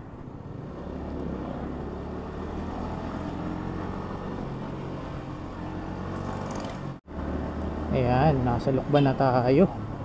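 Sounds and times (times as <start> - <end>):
road noise: 0.0 - 10.0.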